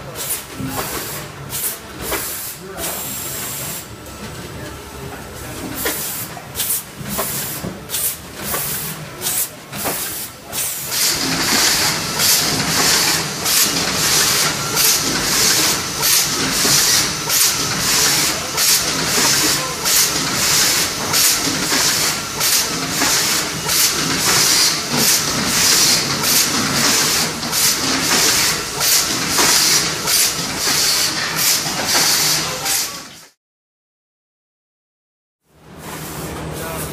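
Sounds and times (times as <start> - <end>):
bagging machine mechanical din: 0.0 - 33.4
short pneumatic hisses: 0.2 - 3.9, 5.8 - 18.2.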